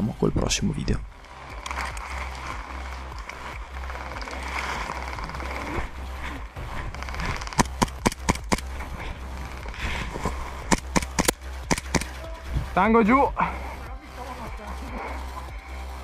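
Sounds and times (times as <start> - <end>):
low steady rumble: 0.0 - 16.0
rustling of grass and undergrowth: 1.0 - 12.8
airsoft pistol firing: 7.6 - 8.7, 10.7 - 12.1.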